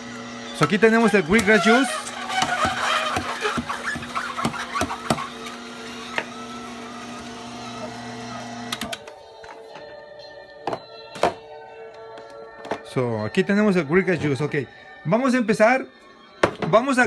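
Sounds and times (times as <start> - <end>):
juicer motor humming: 0.0 - 9.6.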